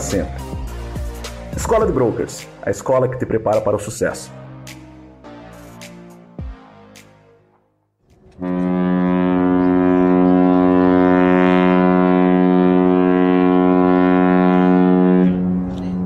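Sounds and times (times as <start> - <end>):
ship's horn blast: 8.4 - 16.0.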